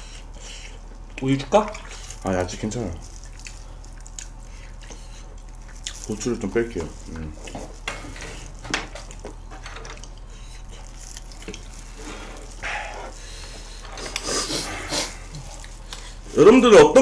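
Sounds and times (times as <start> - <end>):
gloved hands handling saucy food: 0.0 - 17.0
wet chewing: 0.0 - 17.0.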